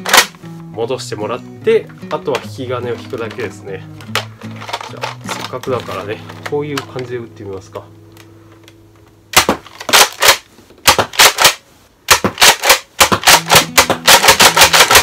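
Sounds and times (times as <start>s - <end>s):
toy blaster pumping and firing: 9.4s - 15.0s.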